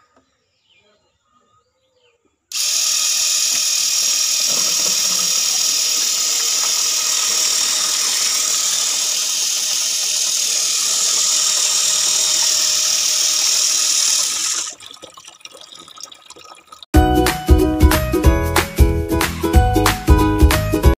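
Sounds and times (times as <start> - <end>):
small electric motor running: 2.5 - 14.7
water gushing into a plastic tub: 11.3 - 16.9.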